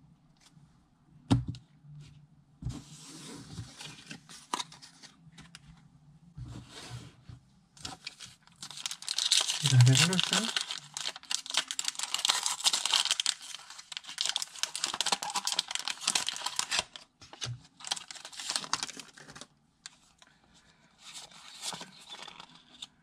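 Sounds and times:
foil wrapper crinkling and tearing: 0:07.9 - 0:19.5.

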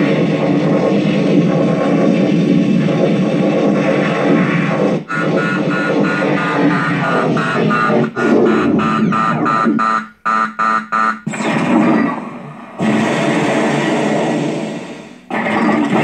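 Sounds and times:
electronic buzzing blast: 0:00.0 - 0:16.0
short chopped electronic pulses: 0:00.0 - 0:16.0.

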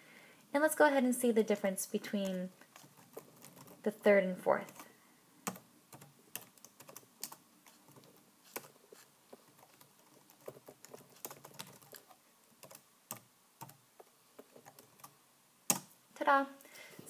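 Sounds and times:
computer keyboard typing: 0:02.1 - 0:03.9, 0:04.6 - 0:13.8, 0:14.4 - 0:15.9.

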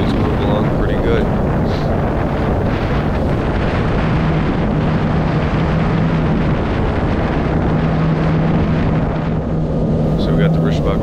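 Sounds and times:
jet ski engine running: 0:00.0 - 0:11.0
rush of water: 0:00.0 - 0:11.0.

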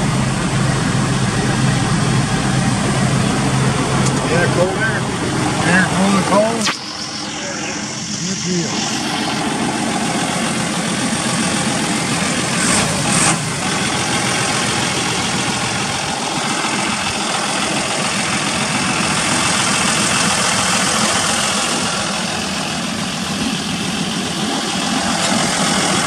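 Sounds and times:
tractor diesel engine idling: 0:00.0 - 0:06.4, 0:07.8 - 0:26.0.

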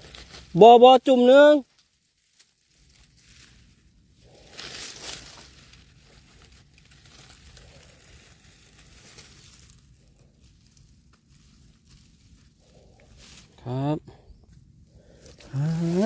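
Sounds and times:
rustling handling noise: 0:00.0 - 0:13.6.

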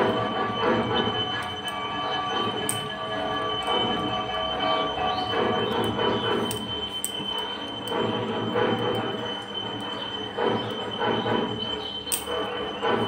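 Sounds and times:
steady high whine: 0:00.0 - 0:13.0.

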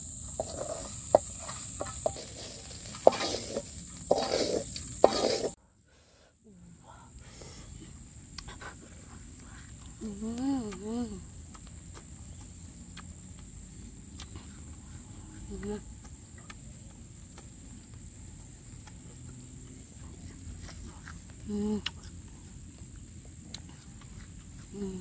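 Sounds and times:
thin high insect-like tone: 0:00.0 - 0:05.6
woman humming while chewing: 0:08.4 - 0:11.6, 0:14.2 - 0:16.5, 0:20.0 - 0:22.2, 0:24.6 - 0:25.0
chewing clicks: 0:11.5 - 0:14.8, 0:16.0 - 0:18.1, 0:18.7 - 0:22.2.

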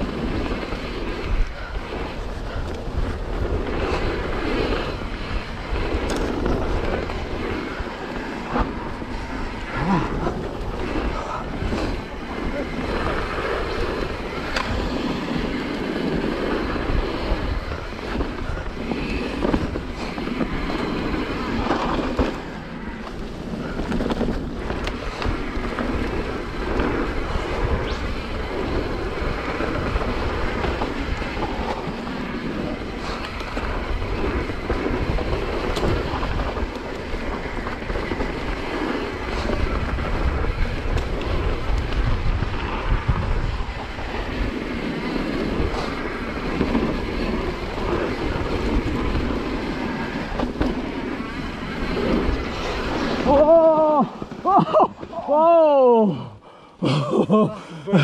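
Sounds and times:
bike clicks and rattles: 0:00.0 - 0:55.5
tyres rolling on dirt: 0:00.0 - 0:56.0
wind noise on microphone: 0:00.0 - 0:56.4.

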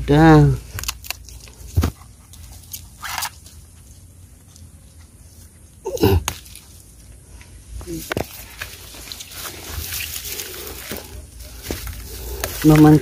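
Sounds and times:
stems and leaves rustling: 0:00.0 - 0:13.0
plant stalk snapping: 0:00.8 - 0:01.9.

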